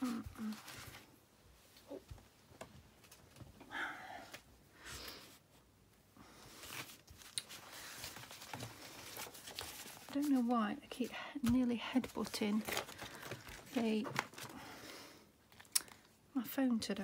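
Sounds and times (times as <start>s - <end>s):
paper rustling and sliding: 6.4s - 10.5s.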